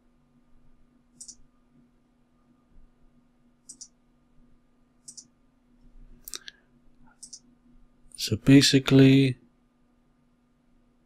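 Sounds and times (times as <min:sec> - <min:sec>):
low steady hum: 0:00.0 - 0:11.0
computer mouse clicking: 0:01.2 - 0:01.4, 0:03.6 - 0:04.0, 0:05.0 - 0:05.3, 0:06.3 - 0:07.5.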